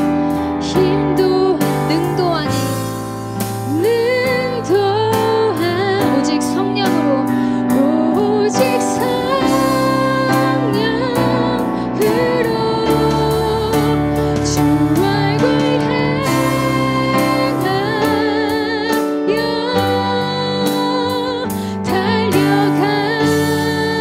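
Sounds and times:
keyboard and band accompaniment: 0.0 - 24.0
women singing together: 7.9 - 24.0.

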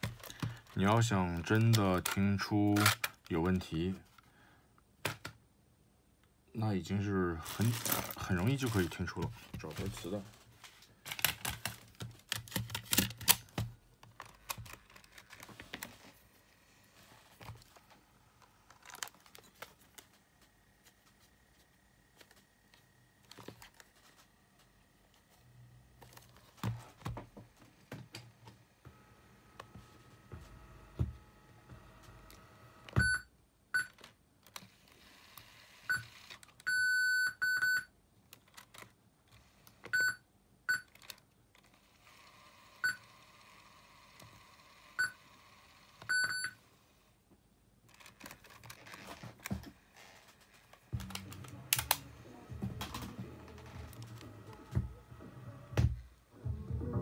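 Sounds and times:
tape playback: 0.0 - 3.8, 47.9 - 57.0.

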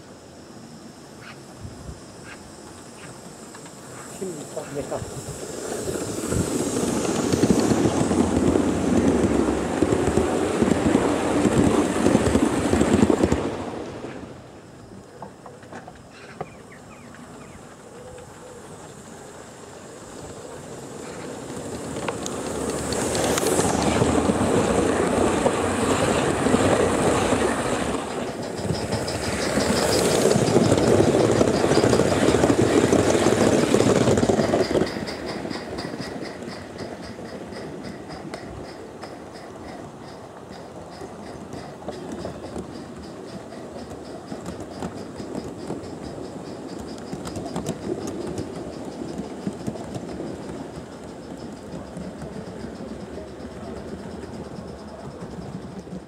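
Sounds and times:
model train wheels rumbling: 2.7 - 56.0.

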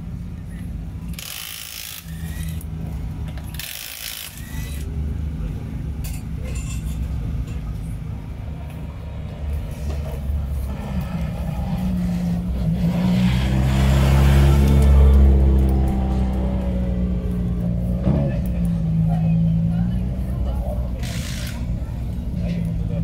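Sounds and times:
air tool burst: 1.1 - 2.6, 3.5 - 4.8, 21.0 - 21.7.

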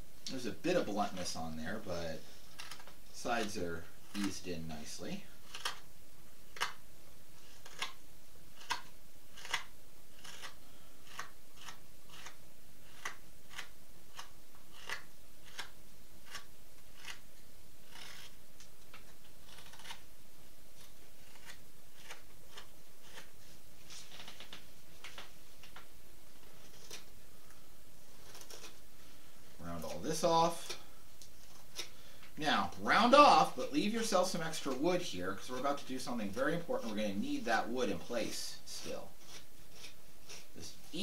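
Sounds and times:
knife slicing wood: 5.4 - 5.9, 7.4 - 20.0, 20.8 - 24.4, 26.4 - 27.1, 28.2 - 28.8, 35.6 - 40.6.

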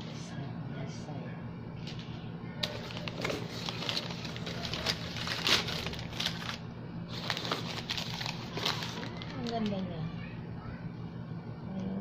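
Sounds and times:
packing paper crinkling: 1.8 - 10.0.

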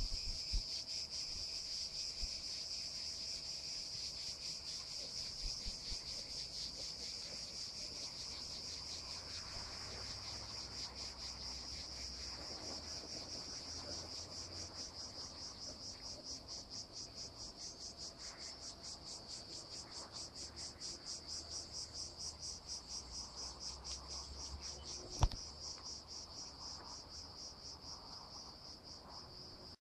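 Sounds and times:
insects chirring: 0.0 - 29.8
sharp click: 25.2 - 25.4.

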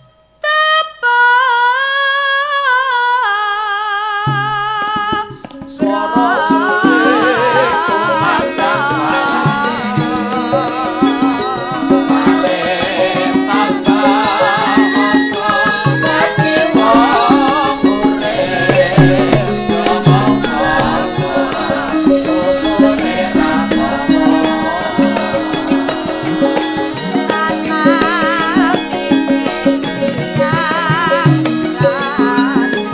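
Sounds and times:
gamelan metallophone notes: 5.7 - 32.9
woman singing wavering line: 5.7 - 32.9.

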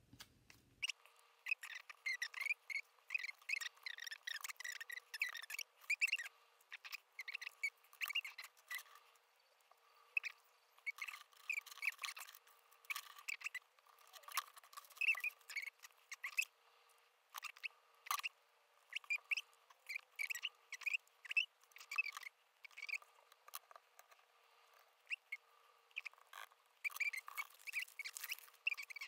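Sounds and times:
short high squeaky chirps: 0.8 - 8.9, 10.2 - 16.5.

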